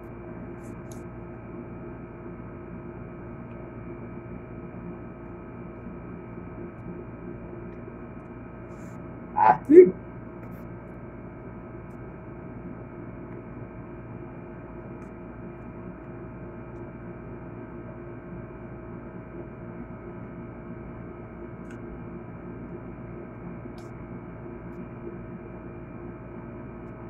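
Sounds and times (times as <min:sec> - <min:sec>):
steady tonal hum: 0:04.2 - 0:10.2.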